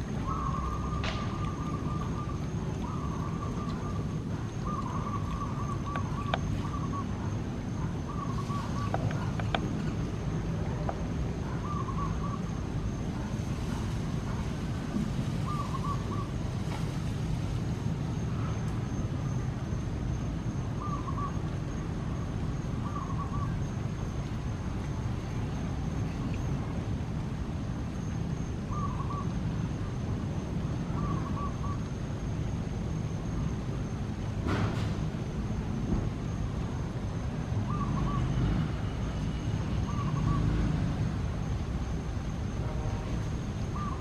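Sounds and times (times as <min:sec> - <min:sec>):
low outdoor rumble: 0:00.0 - 0:44.0
bird warbling call: 0:00.2 - 0:07.2, 0:08.0 - 0:09.6, 0:11.5 - 0:12.5, 0:15.4 - 0:16.4, 0:22.8 - 0:23.6, 0:28.7 - 0:29.3, 0:31.0 - 0:31.8, 0:39.8 - 0:40.5, 0:43.7 - 0:44.0.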